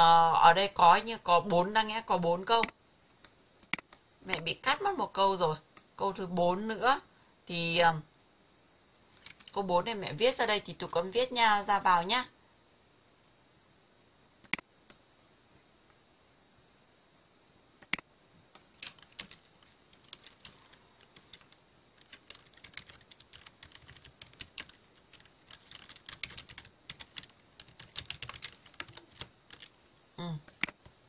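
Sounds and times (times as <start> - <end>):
computer keyboard typing: 9.2 - 9.6, 18.8 - 29.8.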